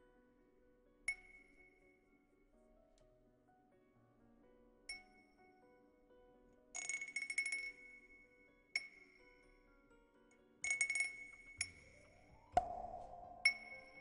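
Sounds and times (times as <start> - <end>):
soft background music: 0.0 - 14.0
tinkling glass chimes: 6.8 - 9.6, 10.6 - 14.0
ringing glass clink: 10.6 - 12.0, 12.6 - 14.0.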